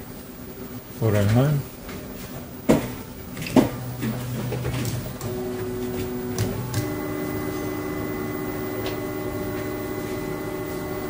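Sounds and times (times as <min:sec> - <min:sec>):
stepper motors whining: 0:03.2 - 0:11.0
brief hum: 0:03.4 - 0:11.0
clicks: 0:03.4 - 0:11.0.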